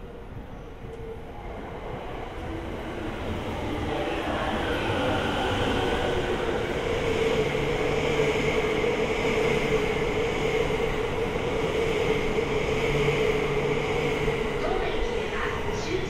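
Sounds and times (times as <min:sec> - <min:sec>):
electric train passing: 0:00.0 - 0:16.0
train whine: 0:00.0 - 0:16.0.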